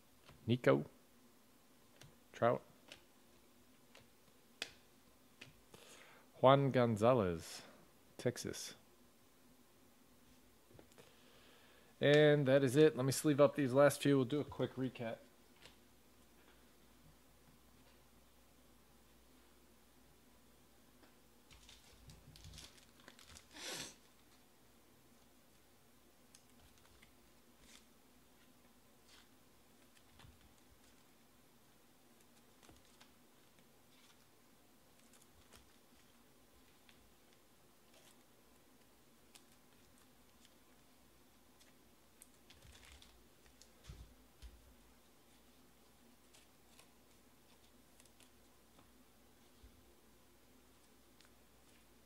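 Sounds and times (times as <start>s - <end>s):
plastic card sleeves crinkling: 21.5s - 24.4s, 26.3s - 31.2s, 32.2s - 40.9s, 41.6s - 44.0s, 45.3s - 48.8s.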